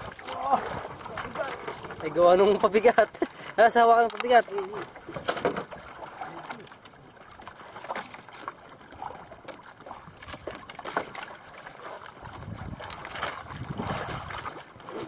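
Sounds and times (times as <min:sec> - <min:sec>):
water lapping against boat: 0:00.0 - 0:15.0.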